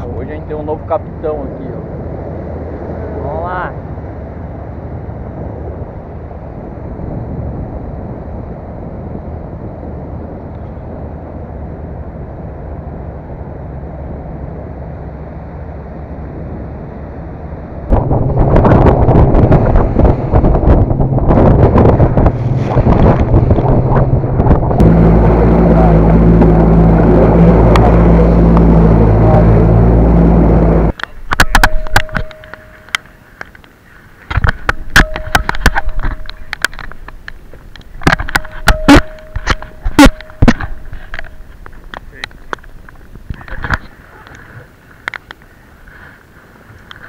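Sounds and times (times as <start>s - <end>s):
wind buffeting microphone: 0.0s - 45.8s
outboard motors droning: 0.0s - 47.0s
hull splashing through waves: 11.6s - 46.9s.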